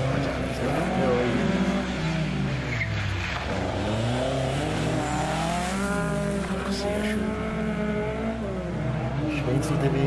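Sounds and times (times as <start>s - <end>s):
car engine revving hard: 3.4s - 8.3s.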